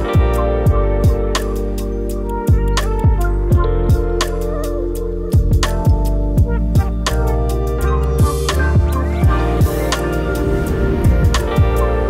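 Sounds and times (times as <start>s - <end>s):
deep sliding kick drums: 0.0s - 1.4s, 2.5s - 4.3s, 5.4s - 7.4s, 8.2s - 12.0s
electronic music with steady beat: 0.0s - 12.0s.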